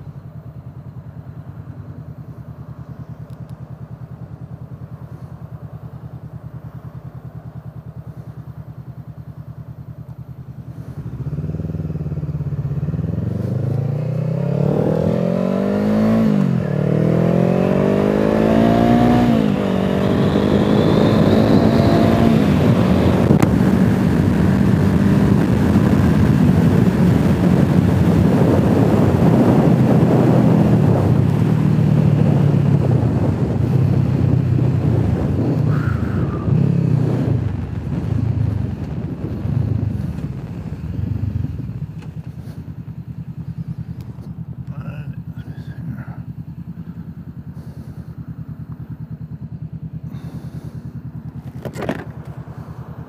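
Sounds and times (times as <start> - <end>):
motorcycle engine accelerating: 0.0 - 53.0
wind noise on microphone: 17.2 - 42.9.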